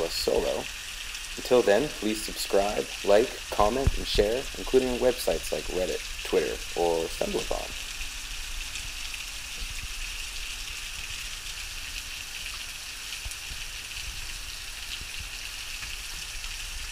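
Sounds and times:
heavy rain on sea surface: 0.0s - 16.9s.

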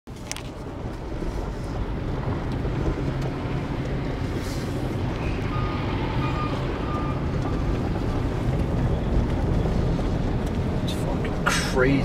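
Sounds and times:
car driving on wet road: 0.1s - 12.0s
faint high beep: 5.3s - 7.8s.

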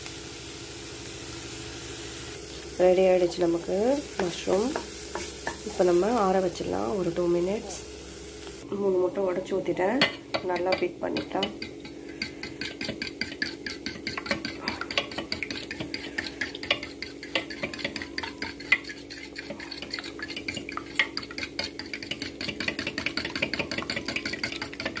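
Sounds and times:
fork clicking against glass bowl: 16.2s - 25.0s.

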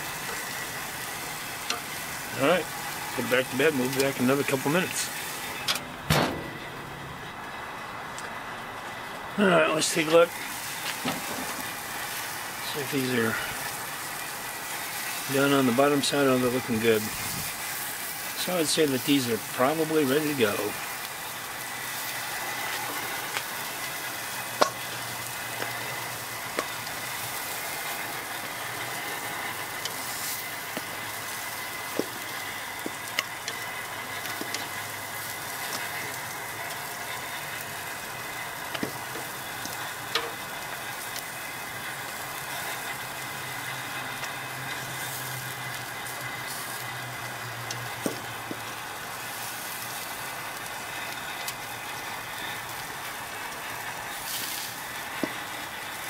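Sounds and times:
vegetables sizzling on a grill: 0.0s - 56.0s.

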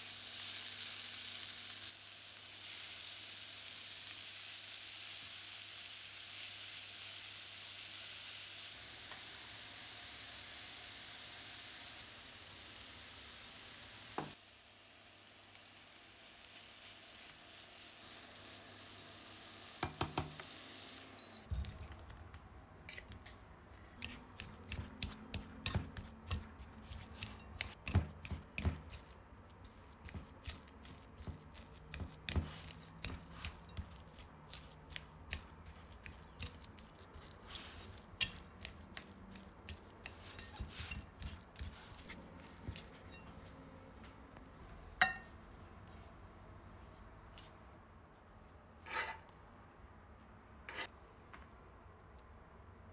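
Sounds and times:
onions sizzling in a pan: 0.0s - 21.5s, 24.0s - 44.2s
fork scraping ceramic bowl: 39.7s - 43.3s.

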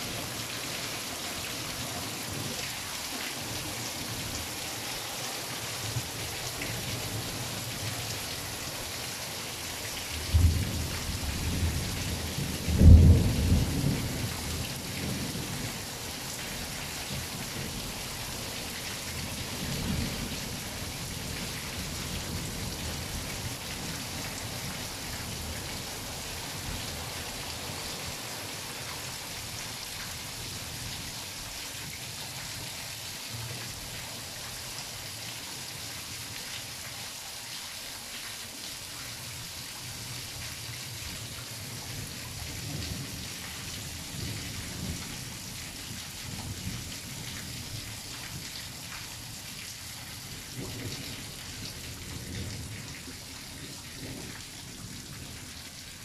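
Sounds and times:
rain pouring and splashing: 0.0s - 56.0s
thunder rumbling: 10.3s - 14.3s.

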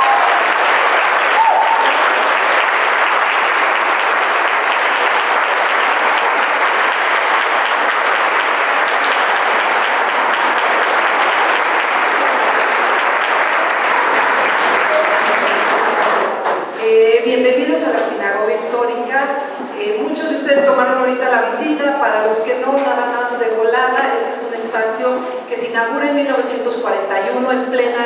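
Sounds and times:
audience applauding: 0.0s - 16.7s.

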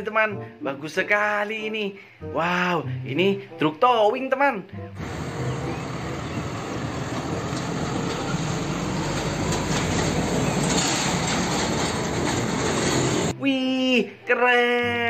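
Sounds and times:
truck engine and tyre noise: 5.0s - 13.4s.

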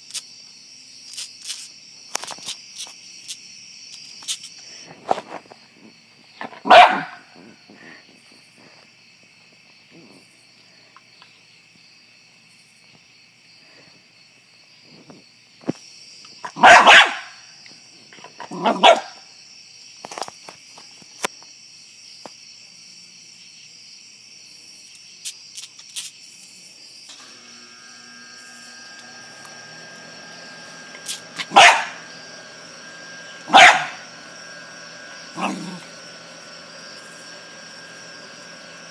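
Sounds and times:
insects chirping: 0.0s - 38.9s
small dog barking: 6.4s - 7.3s, 16.4s - 17.4s, 18.5s - 19.2s, 31.4s - 32.1s, 33.4s - 34.1s, 35.3s - 35.8s.

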